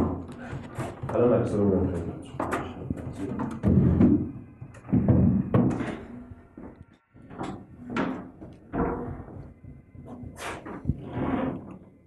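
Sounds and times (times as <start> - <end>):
dull knocks and thuds: 2.4 - 6.0.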